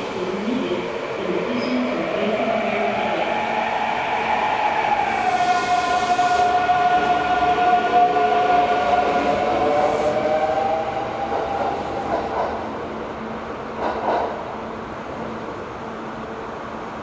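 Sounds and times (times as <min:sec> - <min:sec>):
train high squeal: 0:04.7 - 0:10.2.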